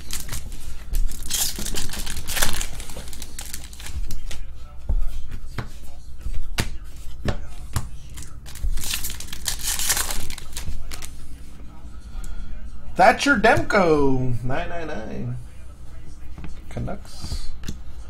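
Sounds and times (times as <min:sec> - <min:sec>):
cards clicking and rustling: 0:00.0 - 0:04.4, 0:06.6 - 0:11.2
foil wrappers crinkling and tearing: 0:00.0 - 0:04.5, 0:08.1 - 0:11.2.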